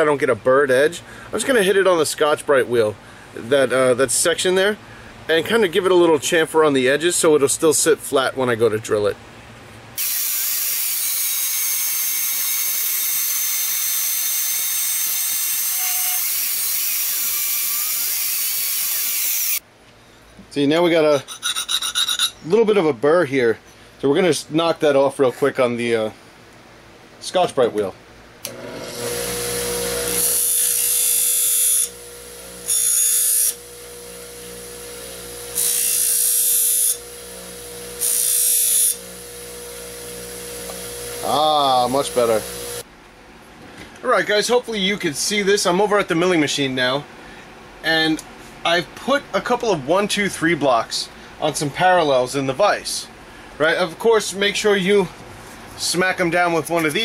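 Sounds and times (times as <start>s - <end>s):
bandsaw cutting steel: 10.0s - 19.6s, 21.2s - 22.4s, 28.5s - 42.8s
bench grinder humming: 10.0s - 19.6s, 28.4s - 42.8s.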